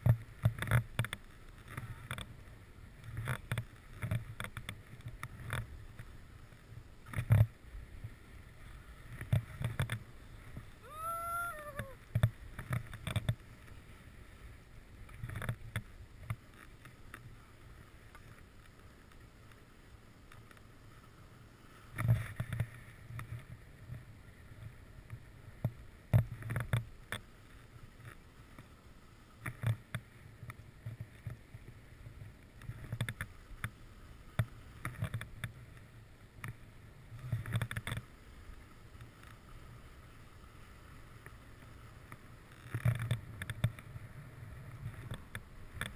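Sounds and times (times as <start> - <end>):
skis scraping on snow: 0.0 - 45.9.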